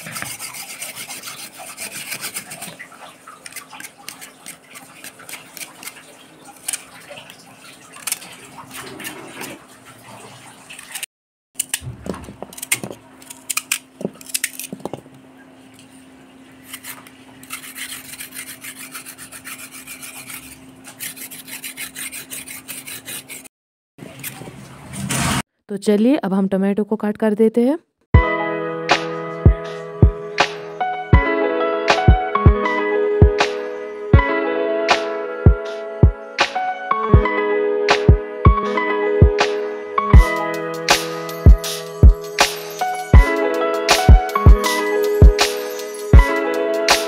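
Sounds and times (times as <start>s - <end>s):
knife scraping stems: 0.0s - 2.8s, 3.4s - 6.0s, 12.5s - 14.8s, 16.6s - 23.5s.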